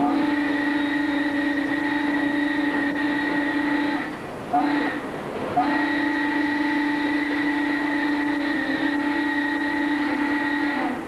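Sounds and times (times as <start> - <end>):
steam locomotive whistle: 0.0 - 11.0.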